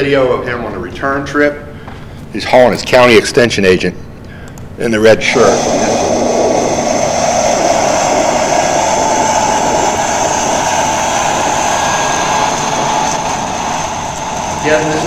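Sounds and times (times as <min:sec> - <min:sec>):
tractor engine under load: 0:05.6 - 0:15.0.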